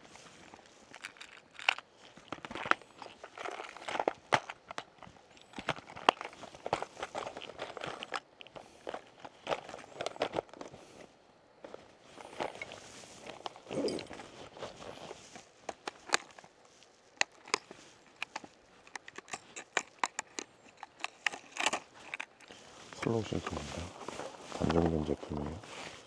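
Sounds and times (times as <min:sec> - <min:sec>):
footsteps on gravel: 0:21.6 - 0:26.0.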